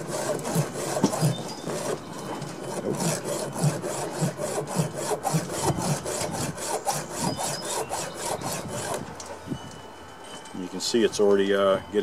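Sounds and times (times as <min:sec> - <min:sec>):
file rasping on saw chain: 0:00.0 - 0:09.1.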